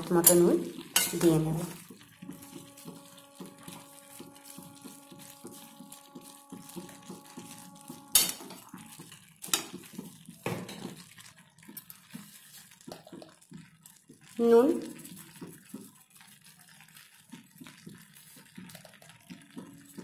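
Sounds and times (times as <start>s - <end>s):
food frying: 0.0s - 20.0s
spoon scraping metal pan: 0.1s - 10.0s.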